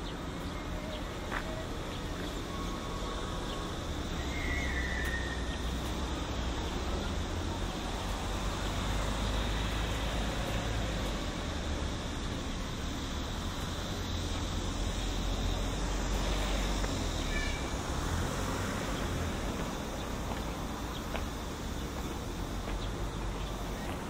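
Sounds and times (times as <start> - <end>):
steady hiss: 0.0 - 24.0
faint high chirp: 0.4 - 5.8.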